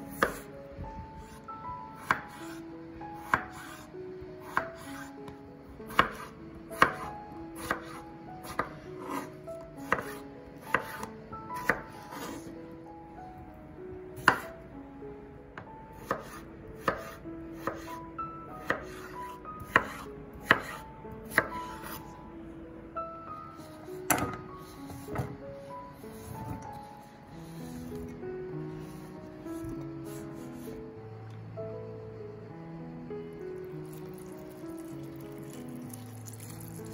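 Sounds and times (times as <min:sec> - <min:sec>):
soft background music: 0:00.0 - 0:36.9
knife chopping on cutting board: 0:00.1 - 0:00.4, 0:02.0 - 0:02.5, 0:03.2 - 0:03.7, 0:05.9 - 0:12.4, 0:14.2 - 0:14.4, 0:16.0 - 0:17.9, 0:18.6 - 0:22.0, 0:24.1 - 0:25.4, 0:26.2 - 0:26.7.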